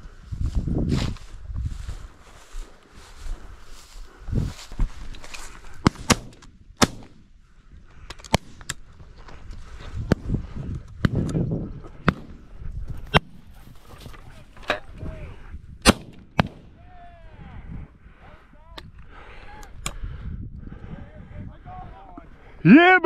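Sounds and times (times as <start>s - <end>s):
distant gunshots: 5.9s - 7.2s
shotgun shots: 5.9s - 7.2s, 15.8s - 16.7s.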